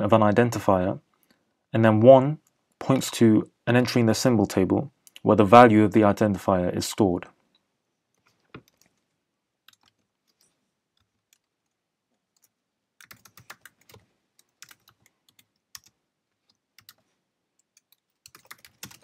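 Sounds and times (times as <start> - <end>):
typing on a keyboard: 9.7 - 11.5, 12.4 - 17.0, 17.6 - 19.0.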